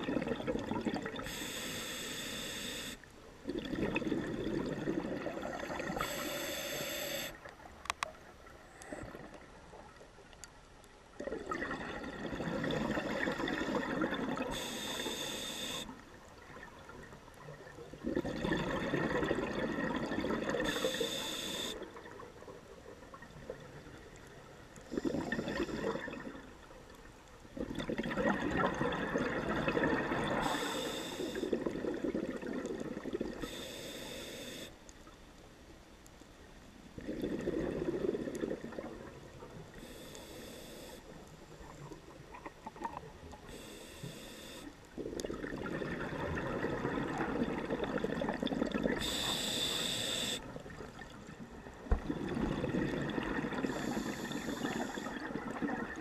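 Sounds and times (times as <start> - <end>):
exhaled air bubbling: 0.0 - 7.7, 11.2 - 26.8, 27.4 - 34.0, 36.9 - 56.0
regulator inhalation hiss: 1.2 - 3.1, 6.0 - 7.4, 14.5 - 16.0, 20.6 - 21.8, 30.4 - 31.5, 33.4 - 34.8, 39.8 - 41.1, 43.5 - 44.7, 49.0 - 50.5, 53.7 - 55.3.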